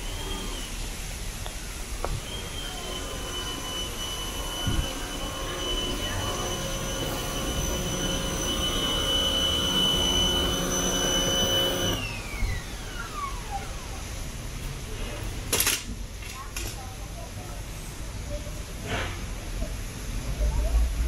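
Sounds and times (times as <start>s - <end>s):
motor whining and spinning down: 0.0s - 14.3s.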